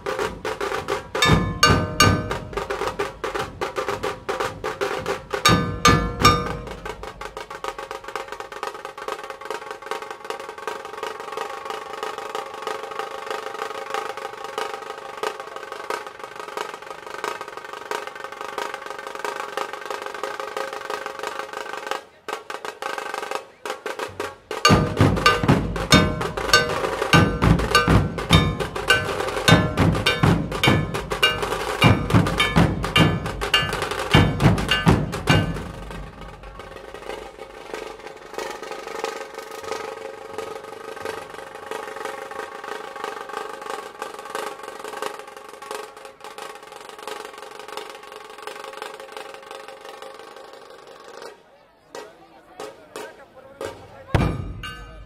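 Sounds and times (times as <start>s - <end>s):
deep dhol drum beats: 0.0s - 8.0s, 24.1s - 37.3s, 54.2s - 55.0s
tasha drums rolling: 0.0s - 20.2s, 21.0s - 51.2s, 53.6s - 55.0s
steady ringing note: 5.5s - 7.2s, 24.7s - 35.9s.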